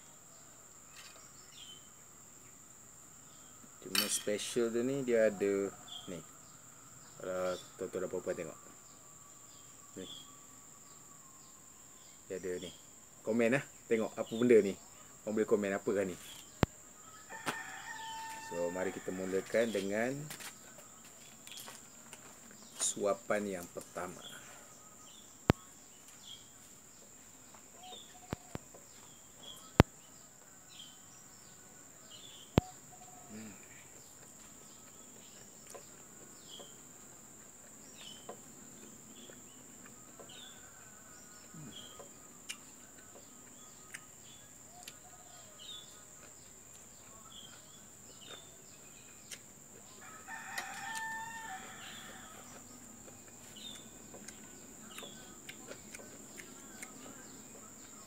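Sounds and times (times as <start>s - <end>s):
small birds chirping: 0.0s - 58.0s
rooster crowing: 4.8s - 7.1s, 17.0s - 20.3s, 49.9s - 53.7s.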